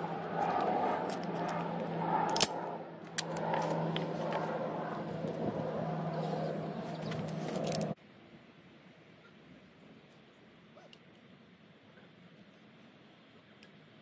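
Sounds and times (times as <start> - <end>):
engine-like rumble: 0.0 - 8.0.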